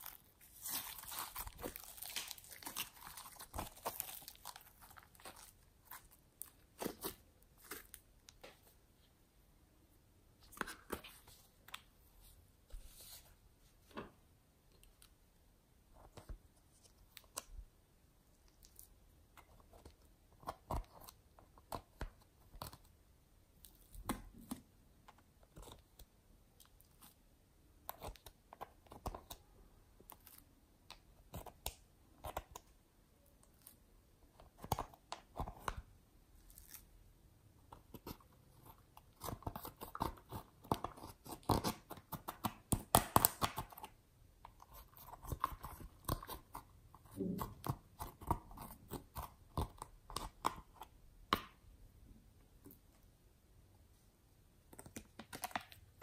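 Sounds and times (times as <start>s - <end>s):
plastic spatula scraping eyeshadow: 37.7s - 50.9s.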